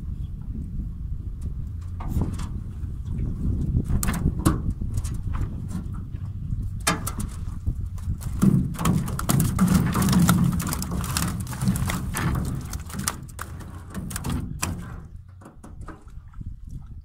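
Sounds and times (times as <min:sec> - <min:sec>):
wind rumble on microphone: 0:00.0 - 0:17.0
water splashing: 0:07.9 - 0:15.1
net rustling: 0:08.1 - 0:14.3
knocks on boat: 0:08.2 - 0:16.1.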